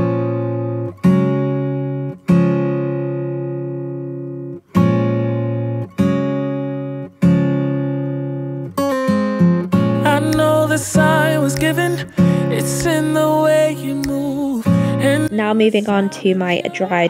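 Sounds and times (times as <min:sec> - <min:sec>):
acoustic guitar strumming chords: 0:00.0 - 0:17.0.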